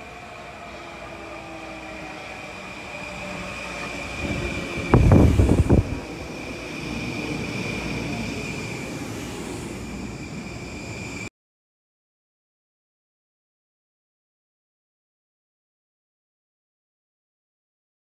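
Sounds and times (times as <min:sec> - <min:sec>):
electric train motor whine: 0:00.0 - 0:11.3
train cars rumbling past: 0:00.0 - 0:11.3
loud knocks of train cars: 0:04.8 - 0:05.9.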